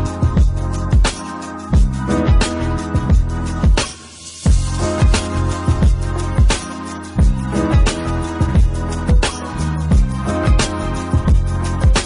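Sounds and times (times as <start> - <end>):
deep kick drum: 0.2 - 1.1, 1.8 - 2.4, 3.0 - 3.8, 4.5 - 6.6, 7.2 - 12.0.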